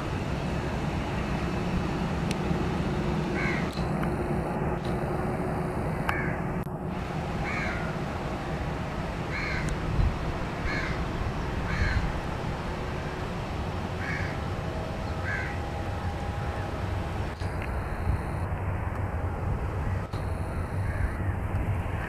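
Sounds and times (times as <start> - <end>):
jet engines rumbling: 0.0 - 22.0
crow cawing: 3.4 - 3.7, 6.1 - 6.4, 7.4 - 7.9, 9.3 - 9.7, 10.6 - 11.0, 11.7 - 12.1, 14.0 - 14.4, 15.2 - 15.6, 20.8 - 21.4.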